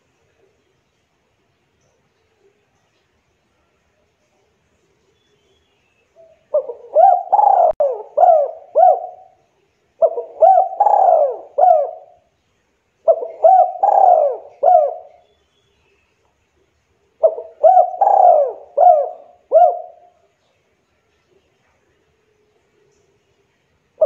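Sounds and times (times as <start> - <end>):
dove cooing: 6.2 - 9.4, 10.0 - 12.3, 13.0 - 15.2, 17.2 - 20.3.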